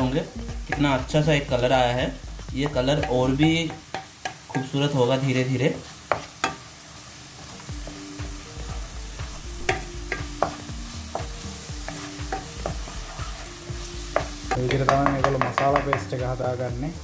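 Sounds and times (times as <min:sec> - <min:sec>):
paste sizzling in oil: 0:00.0 - 0:17.0.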